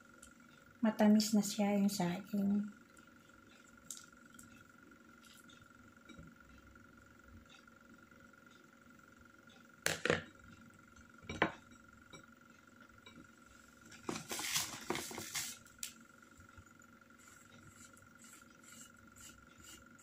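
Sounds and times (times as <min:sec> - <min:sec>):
faint steady hum: 0:00.0 - 0:20.0
paper rustling: 0:14.0 - 0:15.7.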